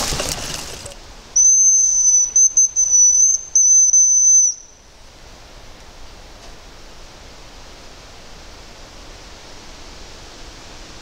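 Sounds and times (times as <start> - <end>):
high bird call whistle: 1.4 - 4.8.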